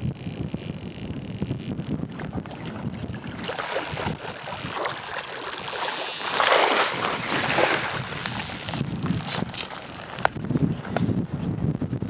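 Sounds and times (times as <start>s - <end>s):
wind noise on microphone: 0.0s - 12.0s
flowing river water: 2.1s - 10.2s.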